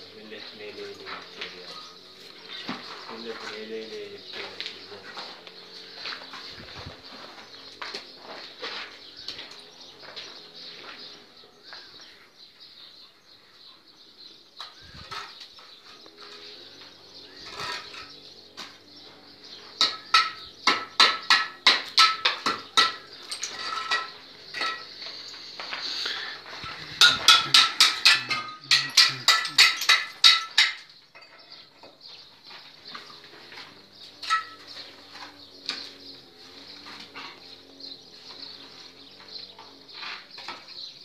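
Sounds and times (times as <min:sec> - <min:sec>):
metal tool striking brick: 0:19.8 - 0:24.9, 0:26.9 - 0:30.9.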